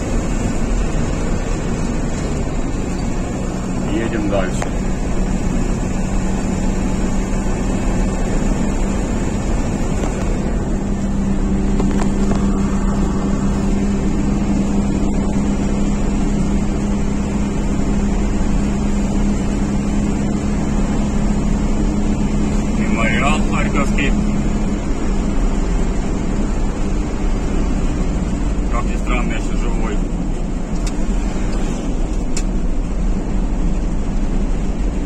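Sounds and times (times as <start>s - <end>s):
car engine drone: 0.0s - 35.0s
tyre rumble on road: 9.4s - 15.5s.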